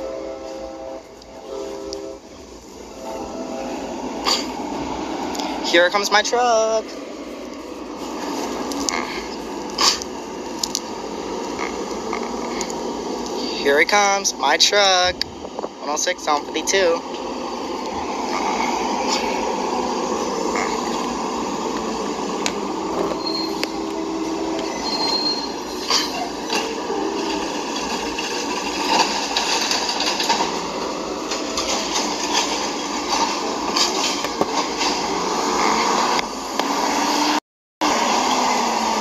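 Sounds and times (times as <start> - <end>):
diesel engine running: 0.0 - 34.2
short high squeals: 23.1 - 23.9, 24.6 - 26.5.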